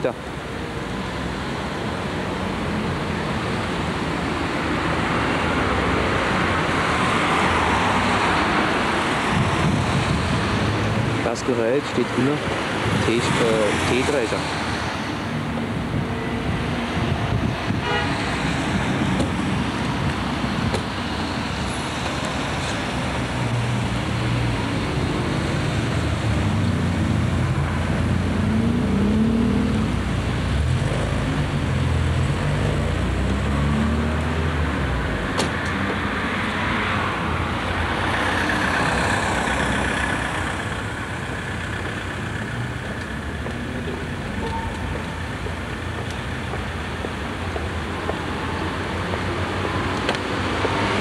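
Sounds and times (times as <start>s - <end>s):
street traffic: 0.0s - 51.0s
engine revving: 24.7s - 34.6s.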